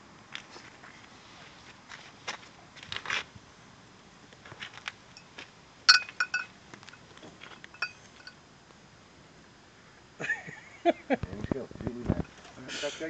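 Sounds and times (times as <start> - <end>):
metallic pings from heated basin: 5.9 - 6.5, 7.8 - 8.4.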